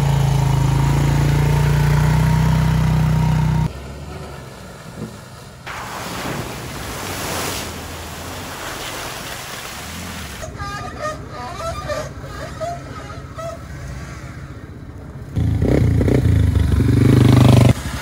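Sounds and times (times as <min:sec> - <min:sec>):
atv engine running: 0:00.0 - 0:05.2, 0:15.3 - 0:18.0
tyres splashing through mud: 0:00.0 - 0:10.6, 0:15.4 - 0:18.0.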